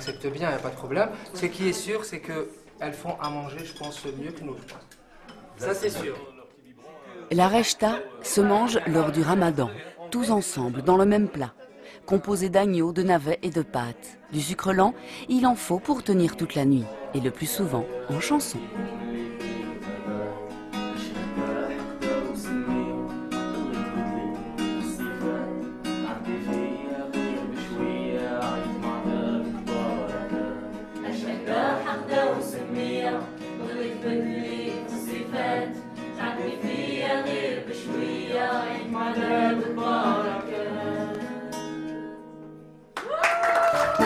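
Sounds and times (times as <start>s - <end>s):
acoustic guitar: 7.3s - 43.0s
voices singing along: 15.1s - 41.7s.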